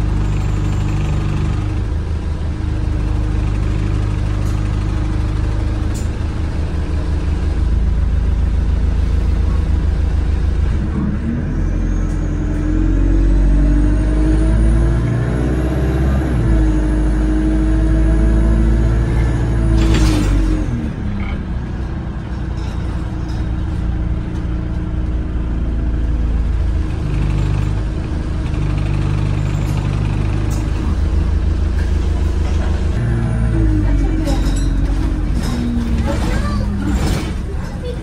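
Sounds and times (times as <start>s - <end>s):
bus diesel engine running: 0.0s - 38.0s.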